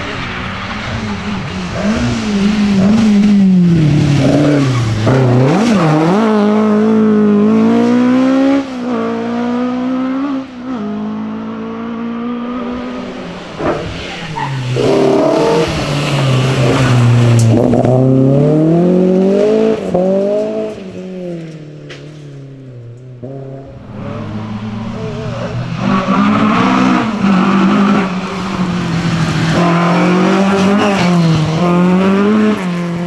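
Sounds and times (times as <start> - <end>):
rally car engines revving: 0.0 - 33.0.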